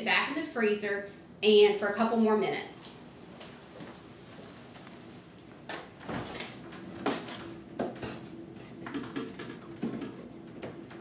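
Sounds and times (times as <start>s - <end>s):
faint freezer hum: 0.0s - 11.0s
freezer clunks and knocks: 5.9s - 11.0s.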